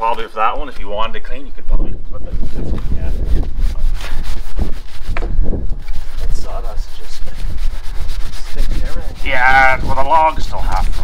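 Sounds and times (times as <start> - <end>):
hand tool scraping wood: 2.3 - 11.0.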